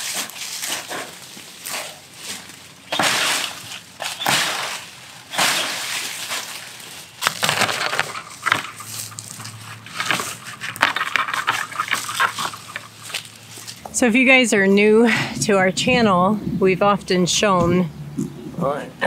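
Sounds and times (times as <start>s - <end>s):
dry leaves and twigs crunching: 0.0s - 14.0s.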